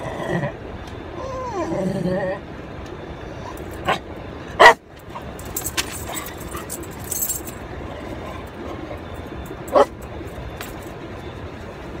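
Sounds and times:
dog barking: 4.6s - 4.8s
rustling and clinking: 5.1s - 7.7s.

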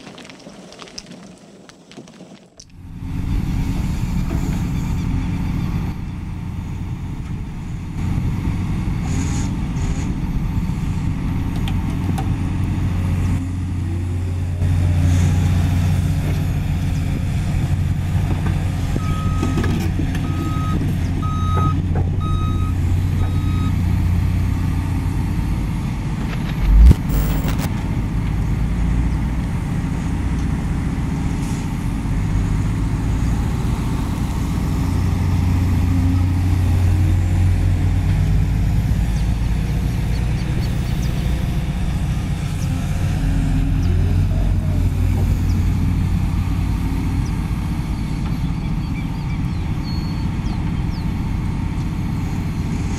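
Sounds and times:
excavator diesel engine running: 2.7s - 52.9s
reversing alarm beeping: 20.2s - 23.8s
loud thump: 26.4s - 27.7s.

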